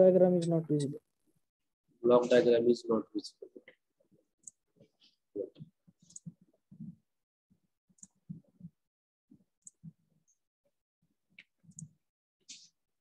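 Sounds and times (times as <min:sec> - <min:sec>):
computer mouse clicks: 0:06.0 - 0:06.4, 0:08.0 - 0:08.4, 0:11.4 - 0:12.7.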